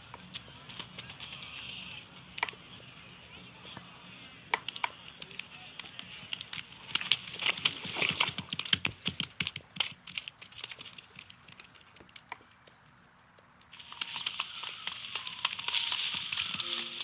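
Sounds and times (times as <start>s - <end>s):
sharp crackles and clicks: 4.5s - 17.0s.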